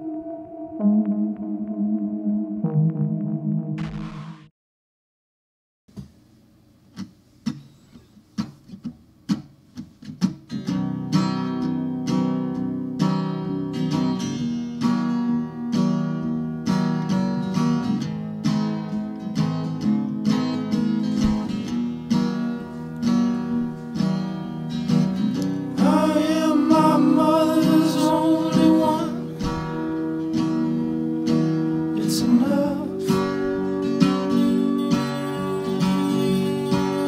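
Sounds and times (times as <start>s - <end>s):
acoustic guitar playing: 0.0s - 4.3s, 6.9s - 37.0s.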